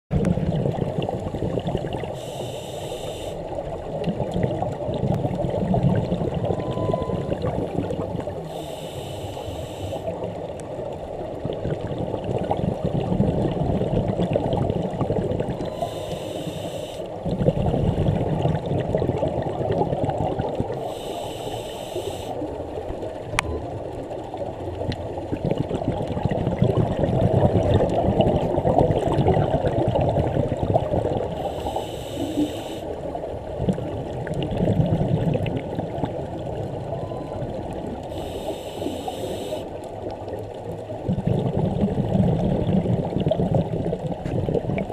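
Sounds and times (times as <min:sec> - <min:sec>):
underwater breathing bubbles: 0:00.1 - 0:10.5, 0:11.4 - 0:22.6, 0:25.2 - 0:39.9, 0:41.0 - 0:44.9
regulator hiss: 0:02.2 - 0:03.5, 0:08.5 - 0:10.1, 0:15.8 - 0:17.1, 0:20.8 - 0:22.4, 0:31.4 - 0:32.9, 0:38.1 - 0:39.7.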